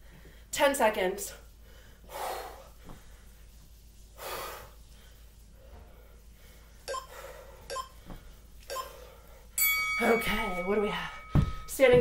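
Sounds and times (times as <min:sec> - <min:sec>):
woman breathing hard: 0:04.2 - 0:09.6.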